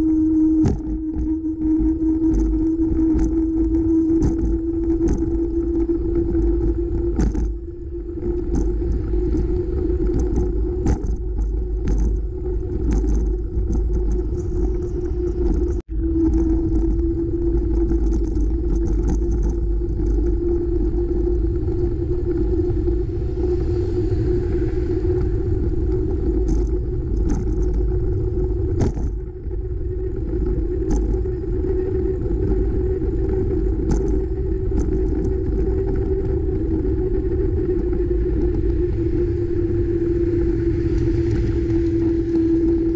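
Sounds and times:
road noise: 0:00.0 - 0:42.9
steady hum: 0:00.0 - 0:42.9
wind rumble: 0:00.0 - 0:42.9
bike clicks and rattles: 0:02.2 - 0:07.6, 0:10.0 - 0:20.5, 0:26.3 - 0:37.6.

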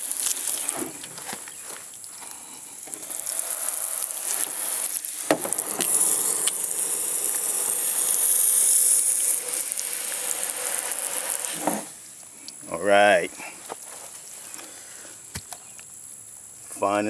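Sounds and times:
hose spraying water: 0:00.0 - 0:12.0.

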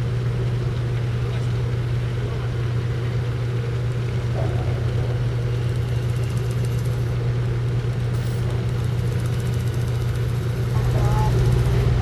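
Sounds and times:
ship engine humming: 0:00.0 - 0:12.0.

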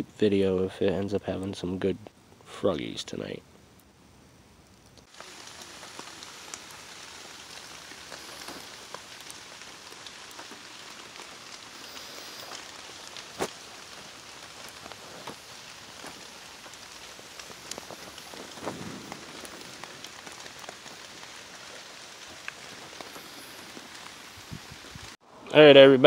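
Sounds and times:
campfire crackling: 0:00.1 - 0:25.2
loud fire pop: 0:17.8 - 0:20.8.

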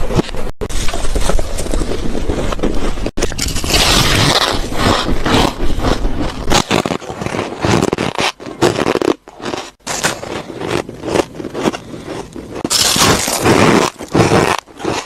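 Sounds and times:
frost being chewed: 0:00.7 - 0:15.0.

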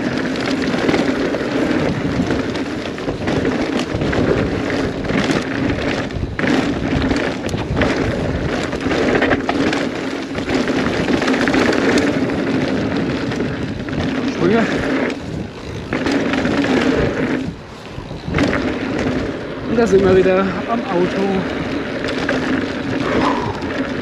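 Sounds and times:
bike clicks and rattles: 0:00.0 - 0:24.0
tyres rushing over dirt and gravel: 0:00.0 - 0:24.0
wind on microphone: 0:00.0 - 0:24.0.

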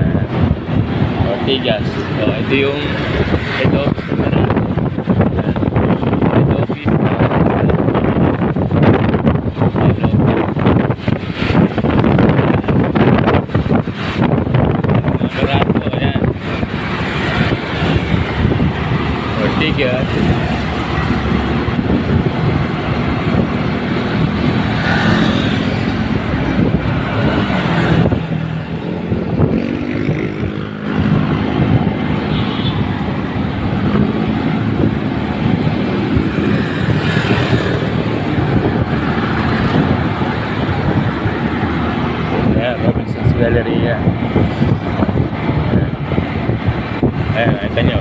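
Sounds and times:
wind and road noise: 0:00.0 - 0:48.0
motorcycle engine: 0:16.0 - 0:42.7.

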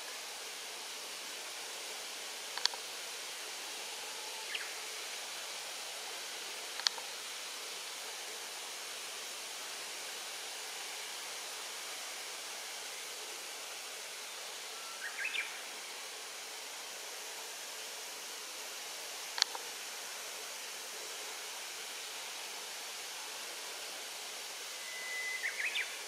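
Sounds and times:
outdoor background hiss: 0:00.0 - 0:26.0
sharp click: 0:02.6 - 0:02.8.

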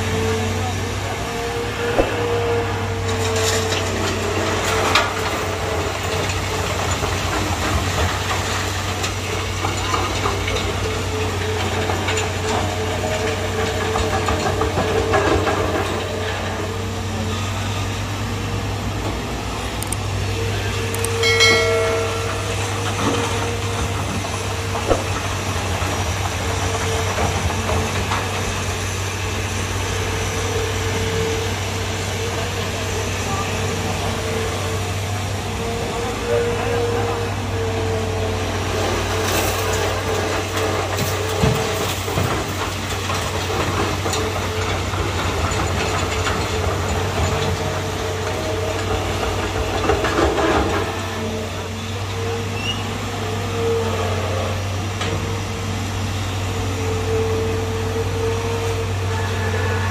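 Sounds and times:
excavator diesel engine running: 0:00.0 - 0:59.9
sharp knocks: 0:24.7 - 0:25.5.

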